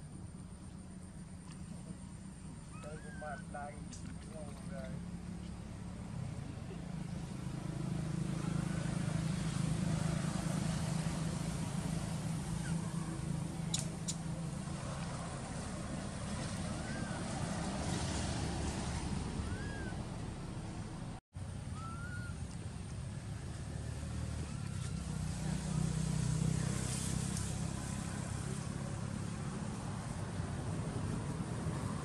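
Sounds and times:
low engine hum: 0.0s - 32.0s
faint squeaking calls: 2.5s - 4.5s, 12.4s - 14.3s, 21.7s - 22.4s.

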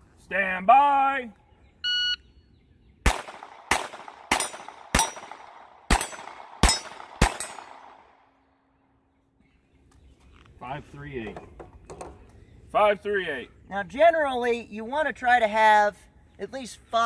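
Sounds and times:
pistol shots hitting steel targets: 3.1s - 8.3s.

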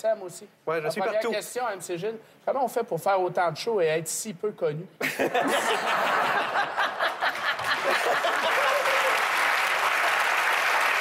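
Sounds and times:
audience laughter: 5.1s - 9.1s
studio audience applauding: 6.9s - 11.0s.

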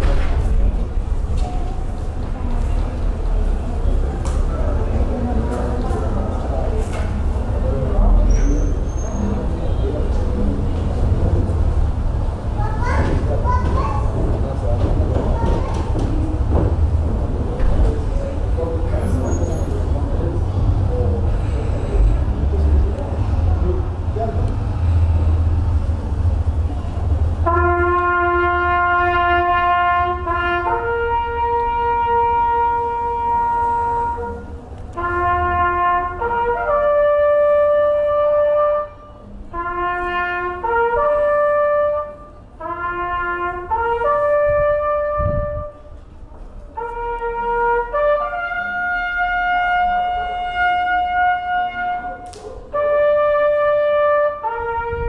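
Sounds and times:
brass instrument slow melody: 27.3s - 46.0s, 46.6s - 55.0s.

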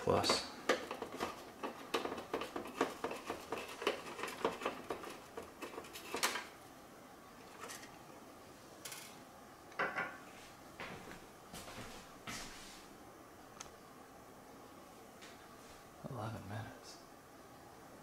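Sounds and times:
screwdriver clicking and scraping: 0.3s - 6.5s.

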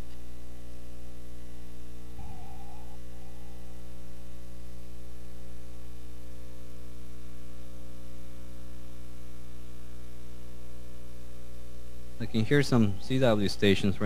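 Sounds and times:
mains hum: 0.0s - 14.0s
radio static hiss: 11.8s - 14.0s.

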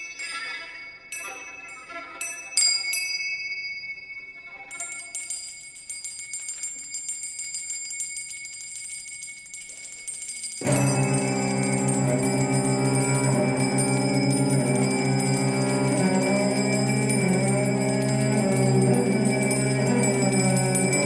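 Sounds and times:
finger cymbals ringing: 5.0s - 21.0s
string quartet bowed chord: 10.6s - 21.0s.

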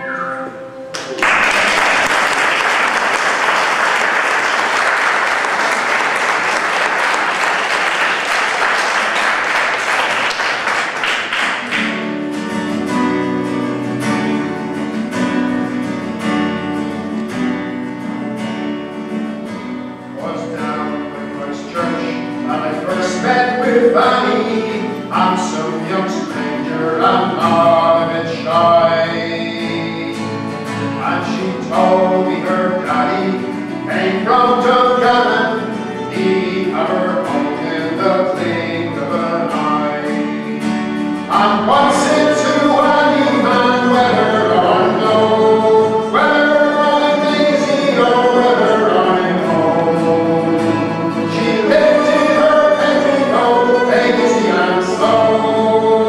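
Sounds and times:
acoustic folk group playing: 0.0s - 56.0s
audience applauding: 0.9s - 12.5s.

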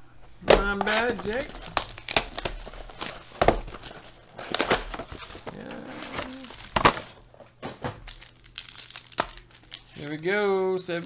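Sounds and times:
cardboard box crackling: 0.5s - 7.3s.

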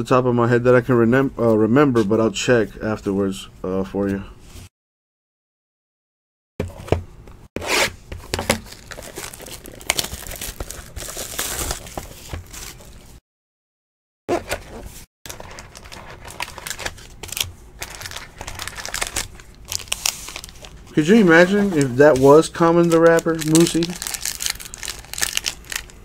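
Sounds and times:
plastic wrap tearing and crumpling: 8.3s - 13.1s, 15.3s - 26.0s.

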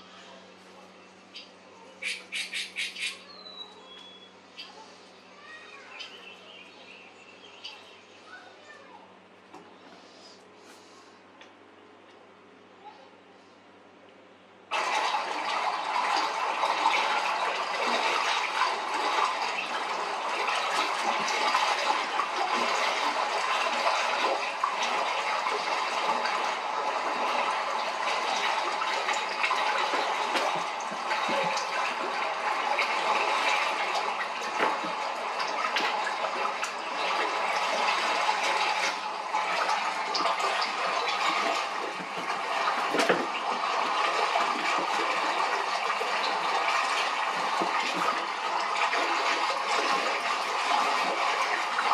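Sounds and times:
rushing bubbling water: 14.7s - 51.9s.

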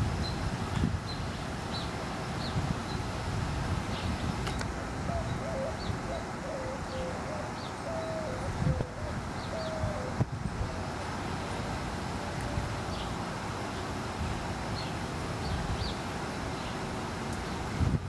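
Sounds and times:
wind rumble on microphone: 0.0s - 16.1s, 17.4s - 18.0s
bird hooting: 5.1s - 10.8s.

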